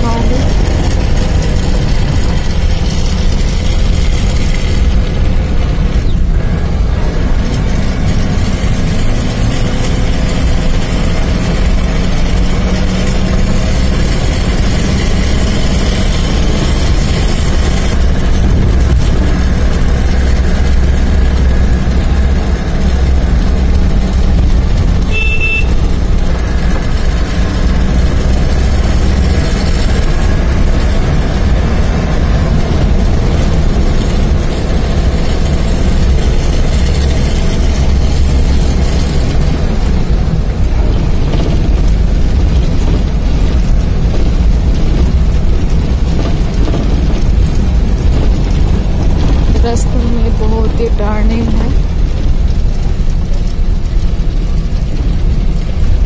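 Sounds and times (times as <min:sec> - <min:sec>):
vehicle engine and road rumble: 0:00.0 - 0:56.0
short horn toot: 0:25.1 - 0:25.8.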